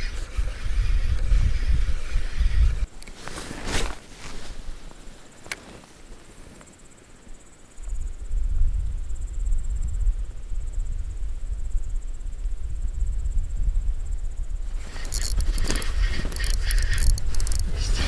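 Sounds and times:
fishing reel whirring: 0.0 - 2.9, 14.8 - 18.0
reel click: 14.8 - 18.0.

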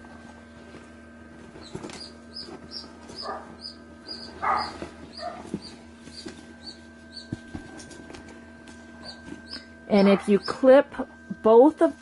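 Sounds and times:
animal squeaking: 1.6 - 7.4, 9.0 - 10.7
animal whining: 1.6 - 7.4.

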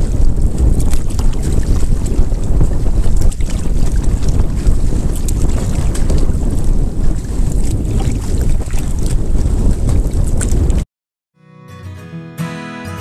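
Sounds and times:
water splashing against canoe: 0.0 - 10.8
wind buffeting microphone: 0.0 - 10.9.

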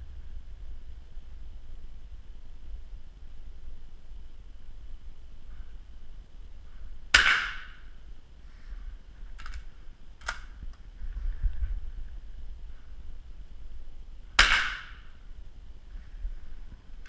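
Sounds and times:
rifle shot with echo: 7.1 - 7.9, 14.4 - 15.2
rifle action clicks: 9.3 - 10.8.

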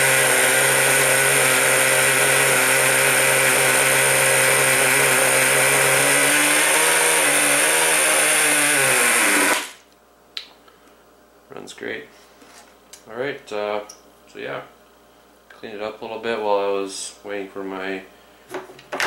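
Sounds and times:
two-stroke model engine running: 0.0 - 9.8.

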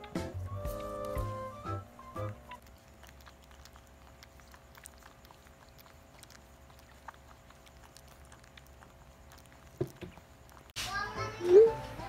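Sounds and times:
puppies suckling: 0.0 - 11.7
low steady hum: 0.0 - 12.0.

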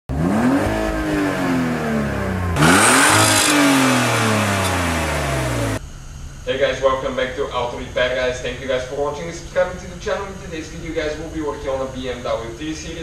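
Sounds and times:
car engine revving: 0.1 - 5.8.

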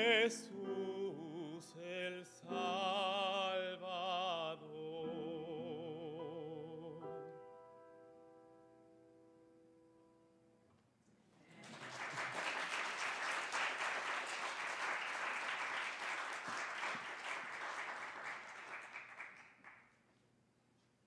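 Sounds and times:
congregation applauding: 11.4 - 20.1.

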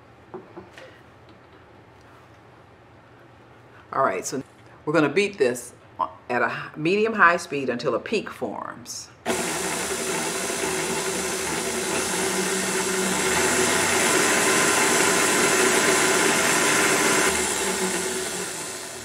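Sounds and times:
stand mixer whisking cream: 9.3 - 19.0.

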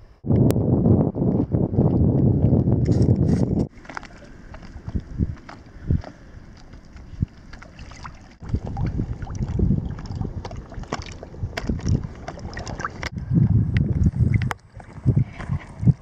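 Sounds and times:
microphone rumbling: 0.2 - 16.0
water sloshing and splashing: 3.3 - 13.2, 13.9 - 16.0.

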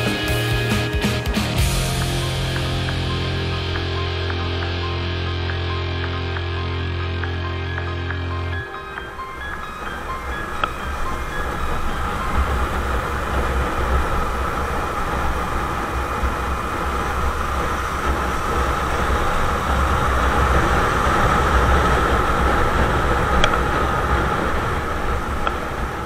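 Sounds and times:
motorcycle engine running: 1.6 - 8.5
wind buffeting camera: 9.0 - 26.0.

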